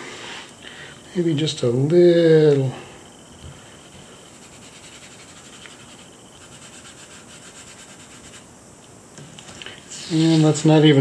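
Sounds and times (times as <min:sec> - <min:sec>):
fingertips rubbing on paper: 0:03.7 - 0:08.5, 0:09.9 - 0:10.7.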